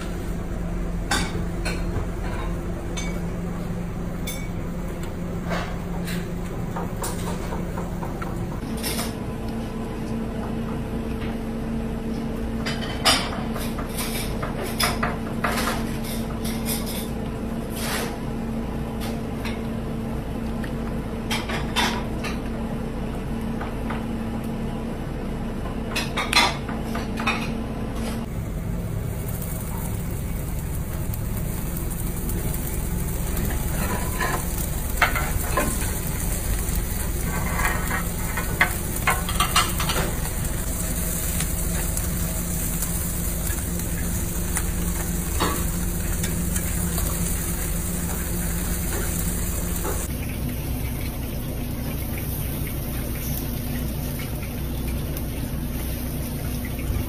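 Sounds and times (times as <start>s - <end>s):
fish sizzling on a grill: 28.3s - 56.7s.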